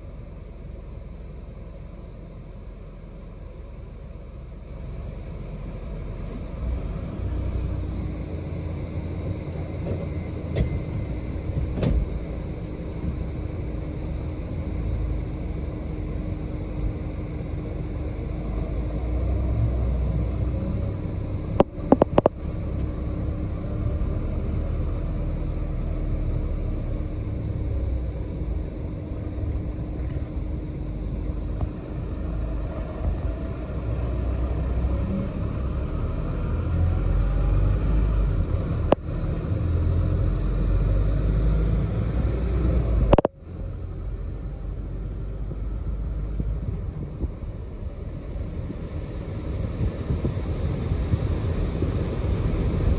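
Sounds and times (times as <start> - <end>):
faint hum: 0.0 - 40.4
bus engine and road rumble: 0.0 - 52.9.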